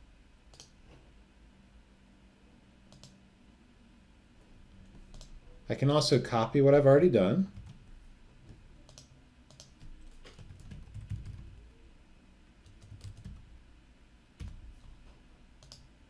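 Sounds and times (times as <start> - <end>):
faint keyboard typing: 0.5 - 0.8, 2.9 - 3.2, 4.7 - 5.4, 7.5 - 11.7, 12.6 - 13.5, 14.4 - 16.0.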